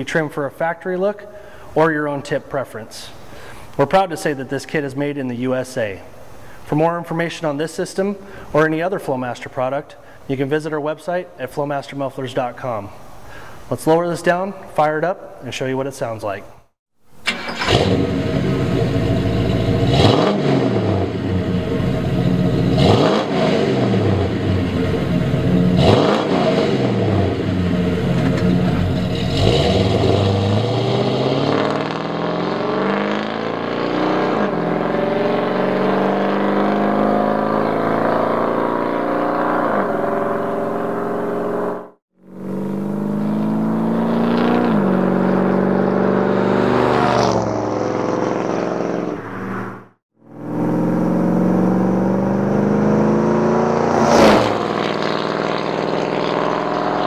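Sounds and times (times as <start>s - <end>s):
car accelerating through gears: 17.3s - 57.0s
engine revving at standstill: 17.3s - 57.0s.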